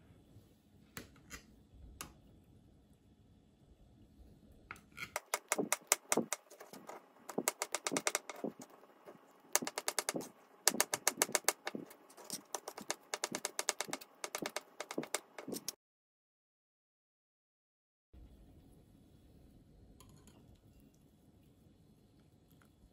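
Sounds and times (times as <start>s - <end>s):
knife chopping on cutting board: 5.2s - 8.7s, 9.6s - 15.8s.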